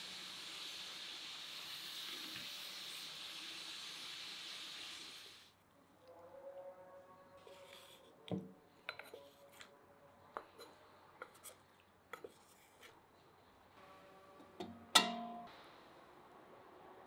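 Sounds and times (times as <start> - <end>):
wooden spatula tapping metal tray: 14.6 - 15.4.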